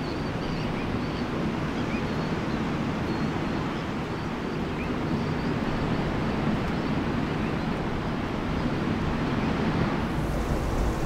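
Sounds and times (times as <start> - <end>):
faint hiss: 10.0 - 11.0
low rumbling noise: 10.0 - 11.0.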